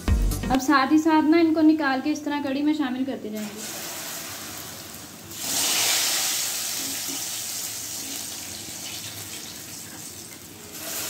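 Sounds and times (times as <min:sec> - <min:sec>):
food sizzling in hot oil: 0:03.4 - 0:11.0.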